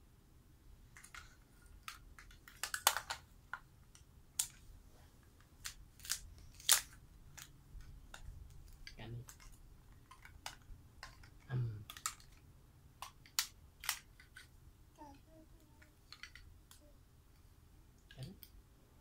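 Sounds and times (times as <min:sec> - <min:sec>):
plastic toy pieces clacking: 0:01.0 - 0:04.6, 0:05.5 - 0:14.5, 0:15.6 - 0:16.9.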